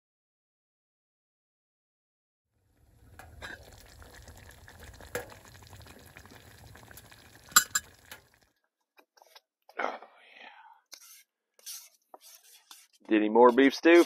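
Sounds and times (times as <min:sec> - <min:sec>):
stew bubbling in a pot: 0:02.6 - 0:08.5
metal pot lid clinks: 0:07.5 - 0:08.0.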